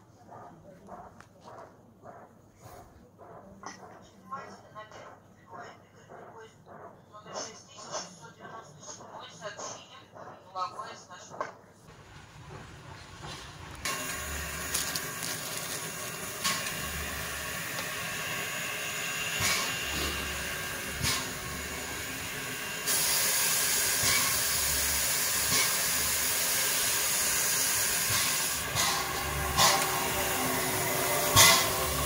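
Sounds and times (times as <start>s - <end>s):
locomotive steam hissing: 11.9s - 32.0s.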